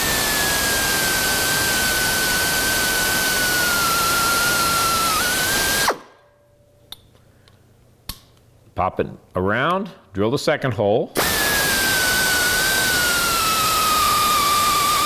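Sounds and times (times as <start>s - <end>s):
pneumatic drill whining: 0.0s - 6.1s, 11.2s - 15.0s.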